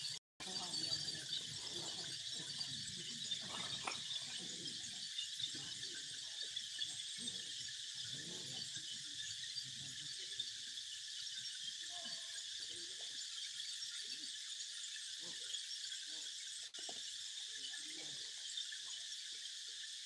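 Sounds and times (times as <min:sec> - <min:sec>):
faint voices: 0:00.0 - 0:10.6
high-pitched insect chorus: 0:00.0 - 0:20.0.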